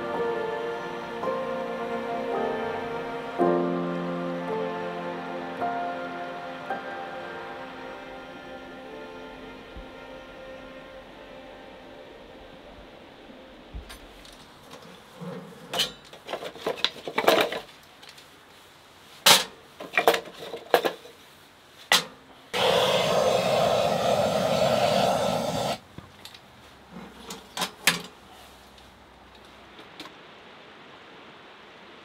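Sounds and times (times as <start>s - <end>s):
clinks and knocks of wood and metal: 13.8s - 18.3s, 19.3s - 21.2s, 27.0s - 28.2s
fire lighting hiss: 22.5s - 25.9s.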